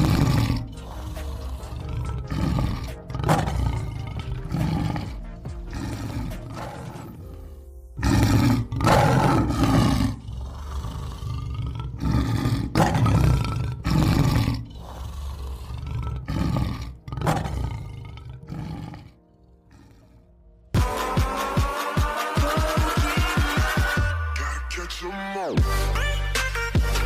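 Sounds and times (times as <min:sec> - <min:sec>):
lion roaring and growling: 0:00.0 - 0:20.7.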